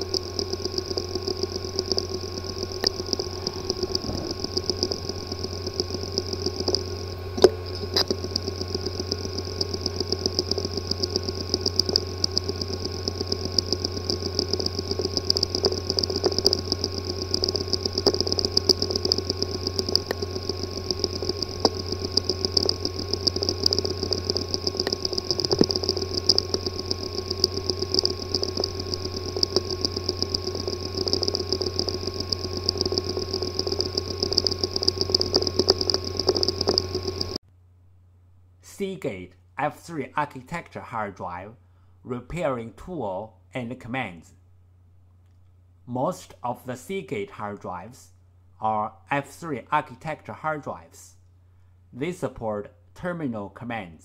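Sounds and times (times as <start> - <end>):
hard drive clicking: 0.0 - 37.4
hard drive hum and whine: 0.0 - 38.9.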